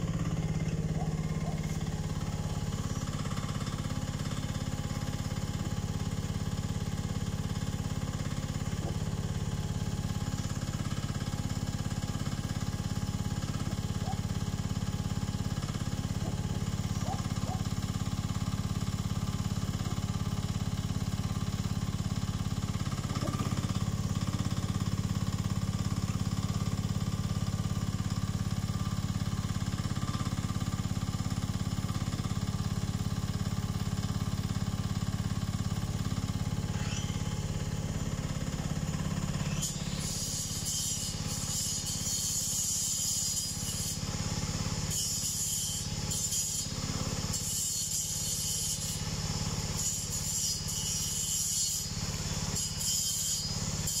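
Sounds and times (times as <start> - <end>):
excavator engine running: 0.0 - 39.4.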